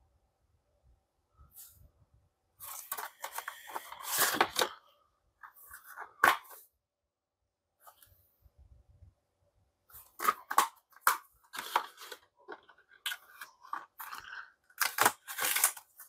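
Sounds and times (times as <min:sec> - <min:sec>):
plastic packaging crinkling: 0:10.0 - 0:16.0.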